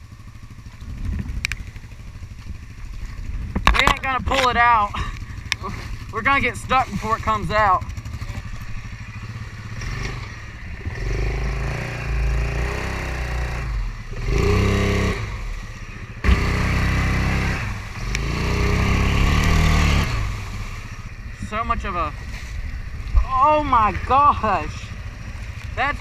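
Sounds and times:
quad engine revving under load: 3.7 - 21.4.

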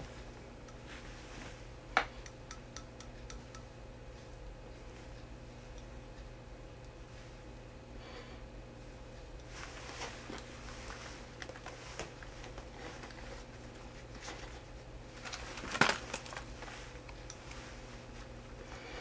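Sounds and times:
rustling and handling noises: 0.0 - 1.8, 9.2 - 19.0
steady low hum: 0.0 - 19.0.

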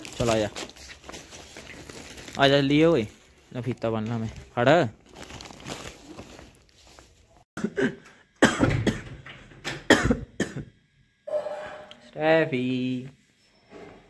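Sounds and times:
person coughing harshly: 7.6 - 9.1, 9.9 - 10.7.

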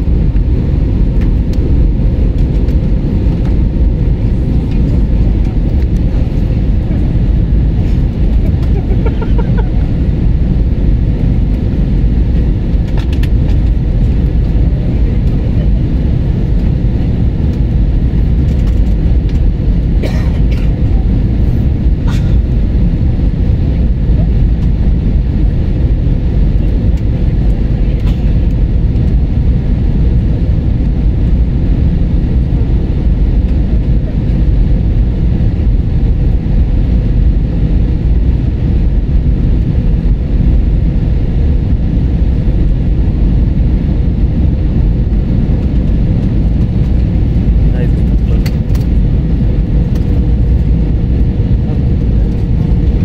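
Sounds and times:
rushing air: 0.0 - 15.2
airliner engine rumble: 0.0 - 53.0.

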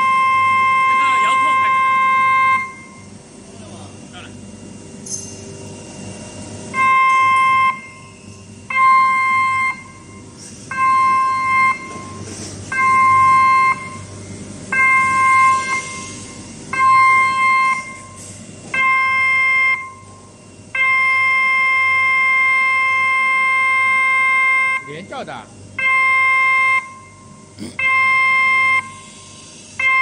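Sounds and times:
electronic warning beeps: 0.0 - 3.1, 6.7 - 14.1, 14.7 - 18.2, 18.8 - 20.1, 20.8 - 29.1, 29.8 - 30.0.

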